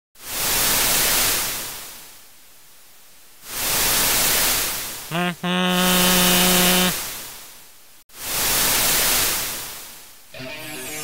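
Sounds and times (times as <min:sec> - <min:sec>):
ship's horn low toot: 0:05.1 - 0:07.0.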